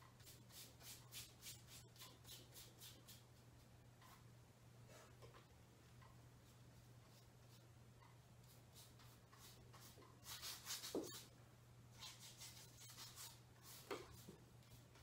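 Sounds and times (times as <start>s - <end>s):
low steady hum: 0.0s - 10.4s, 11.2s - 15.0s
paintbrush strokes on canvas: 8.4s - 11.3s, 12.0s - 15.0s.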